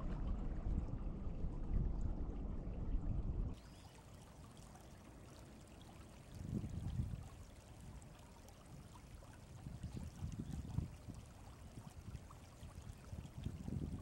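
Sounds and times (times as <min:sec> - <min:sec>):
river water running: 0:03.5 - 0:14.0
wind buffeting microphone: 0:06.3 - 0:08.0, 0:09.4 - 0:14.0.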